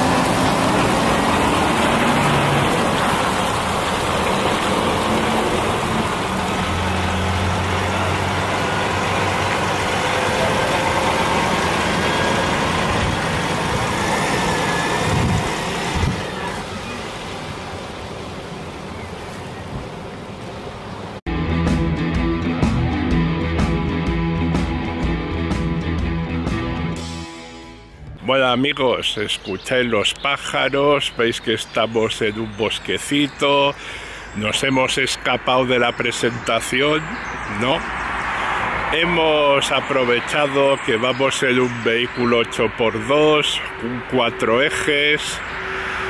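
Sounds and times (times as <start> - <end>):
truck diesel engines passing: 0.0 - 21.2, 27.9 - 46.0
music: 21.3 - 28.4.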